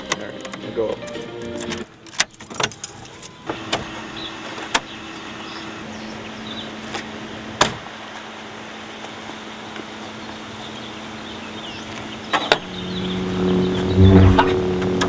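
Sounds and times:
low steady hum: 12.6s - 15.0s.

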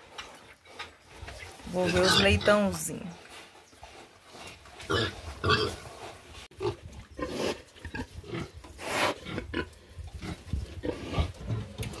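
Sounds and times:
pigs grunting: 4.4s - 6.0s.

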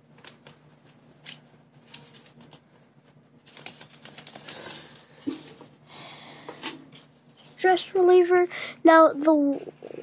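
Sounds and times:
paper crinkling and rustling: 0.1s - 5.1s.

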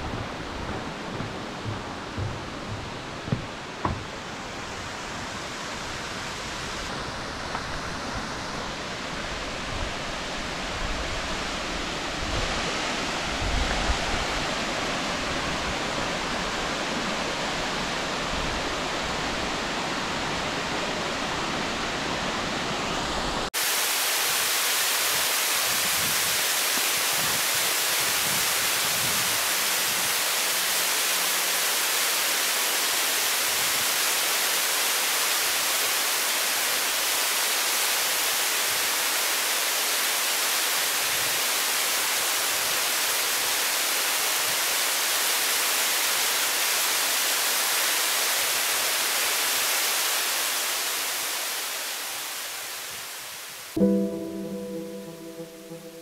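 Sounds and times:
waterfall rushing: 0.0s - 56.0s.

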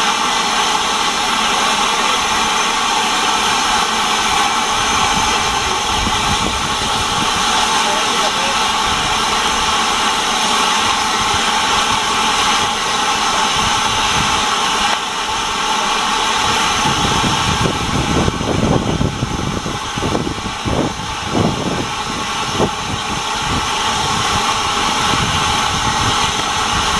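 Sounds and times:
steam hissing: 0.0s - 26.9s
low rumbles and thuds: 3.4s - 7.6s, 16.4s - 26.9s.

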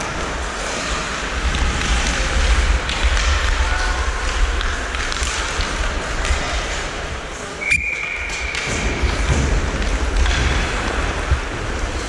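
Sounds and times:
low rumble: 0.0s - 7.3s
ice skating noise: 0.0s - 12.0s.

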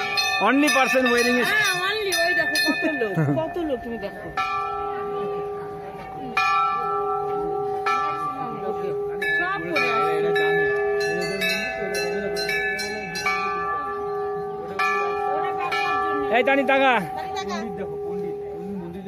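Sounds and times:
brass bells ringing: 0.0s - 19.0s.

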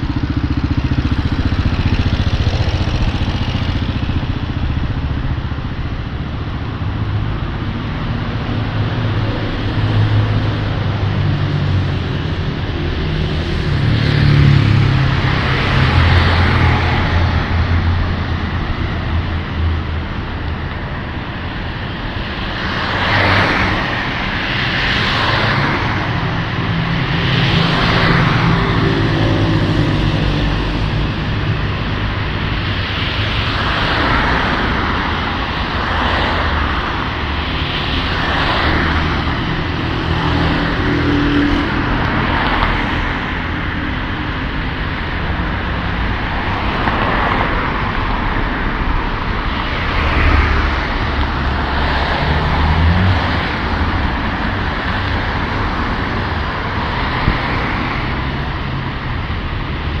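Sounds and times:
cars passing: 0.0s - 60.0s.

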